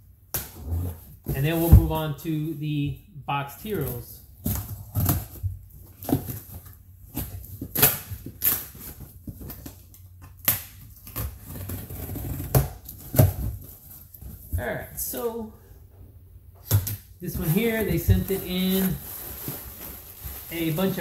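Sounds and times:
tape tearing: 4.4s - 14.3s.

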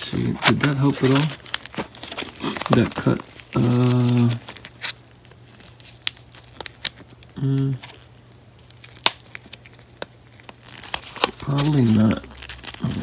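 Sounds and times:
cardboard packaging crinkling: 0.2s - 13.0s
person voicing mm: 7.4s - 7.8s, 12.1s - 13.0s.

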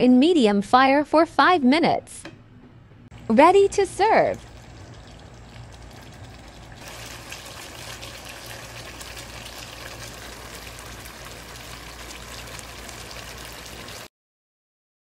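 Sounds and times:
curry bubbling and crackling in pan: 4.4s - 14.1s.

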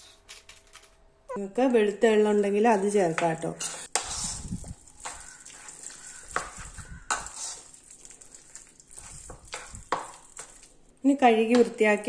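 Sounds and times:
spoon stirring wet batter: 2.4s - 11.8s.

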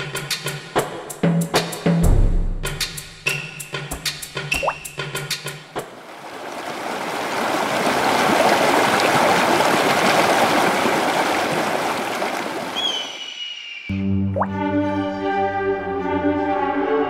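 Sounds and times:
rushing water: 5.6s - 13.3s.

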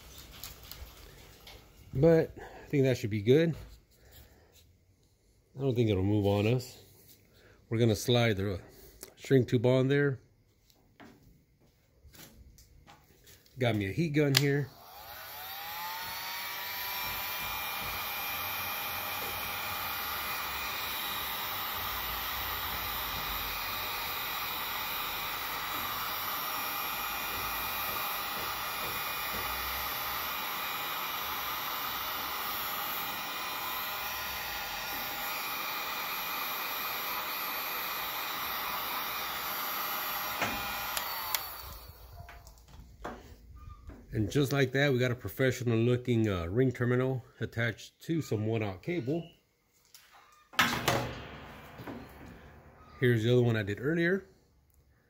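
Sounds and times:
heat gun blowing hot air: 14.4s - 42.2s.

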